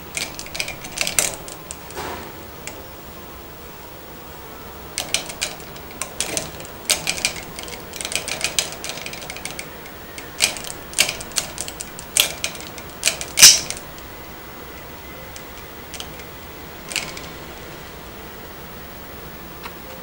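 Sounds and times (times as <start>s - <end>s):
plastic clicks and rattles: 0.0s - 2.0s, 5.0s - 14.0s, 15.3s - 16.3s.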